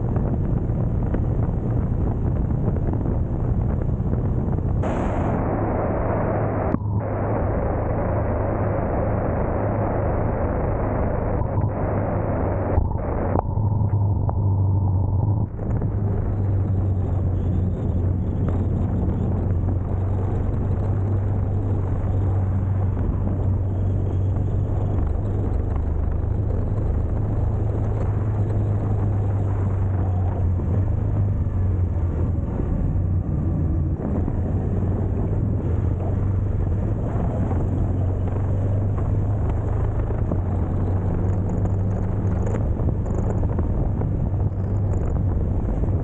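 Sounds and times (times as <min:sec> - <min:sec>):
motorcycle engine drone: 0:00.0 - 0:46.0
wind noise: 0:00.0 - 0:46.0
tyres on wet road: 0:15.6 - 0:46.0.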